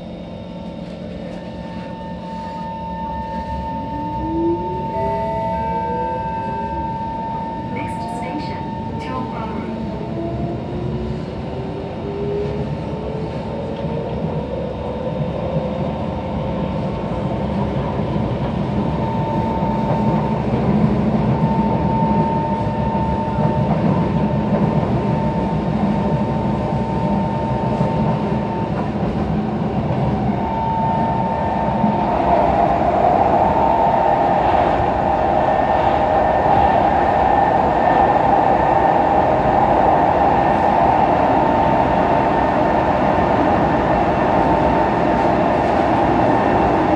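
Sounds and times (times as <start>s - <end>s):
high steady tone: 1.3s - 10.0s.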